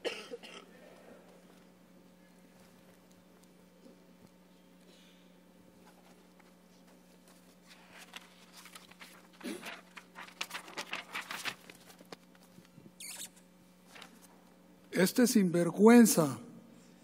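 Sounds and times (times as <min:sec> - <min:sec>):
notebook pages rustling: 0:05.8 - 0:12.6, 0:13.9 - 0:14.3.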